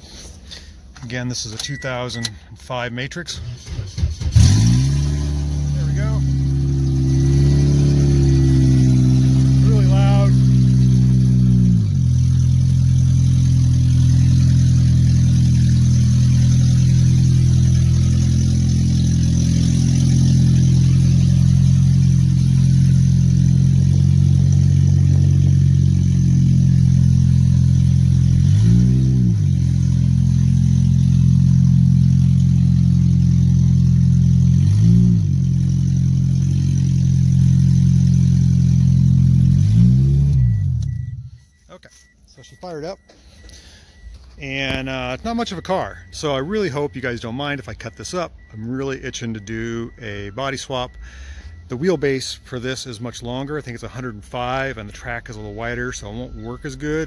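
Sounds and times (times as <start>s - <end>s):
car engine revving: 3.4s - 41.6s.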